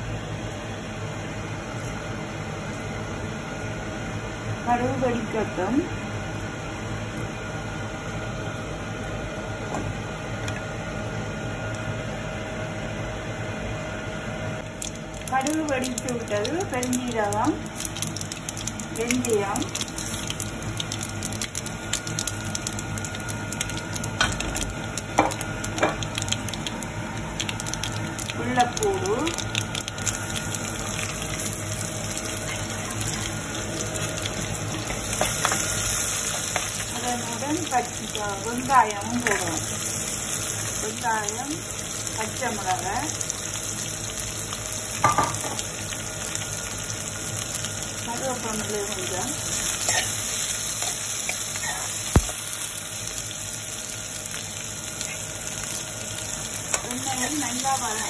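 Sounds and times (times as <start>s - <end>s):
garlic sizzling in oil: 14.6s - 58.0s.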